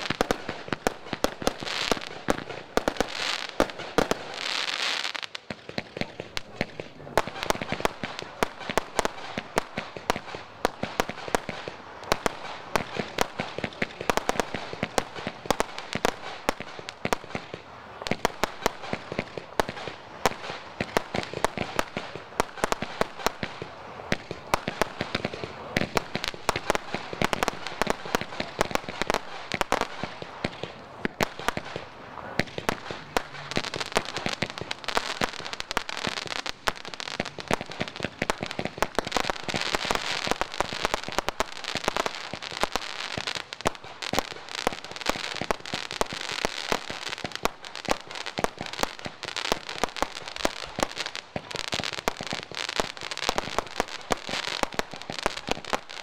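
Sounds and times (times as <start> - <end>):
fireworks crackling: 0.0 - 56.0
fireworks pops and bangs: 0.0 - 56.0.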